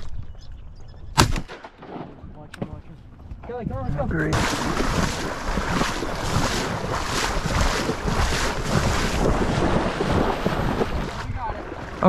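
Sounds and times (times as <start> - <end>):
wind buffeting microphone: 2.1 - 12.0
people wading through water: 4.0 - 12.0.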